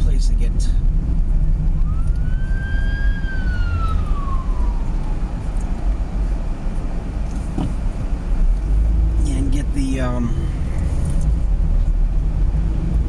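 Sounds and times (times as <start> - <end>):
car engine and road rumble: 0.0 - 13.0
siren-like wail: 1.8 - 6.3.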